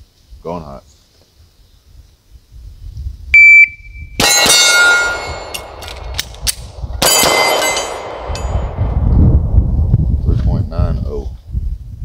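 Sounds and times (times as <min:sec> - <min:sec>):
shot timer beep: 0:03.4 - 0:04.2
steel targets ringing: 0:04.2 - 0:05.8, 0:07.0 - 0:08.8
pistol shots: 0:04.2 - 0:08.8
magazine change clicks: 0:05.5 - 0:07.4.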